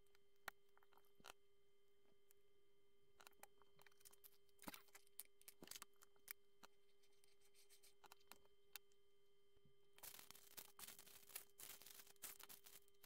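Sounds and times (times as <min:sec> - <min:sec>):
faint steady hum: 0:00.0 - 0:13.0
rattle and rustle: 0:10.0 - 0:13.0.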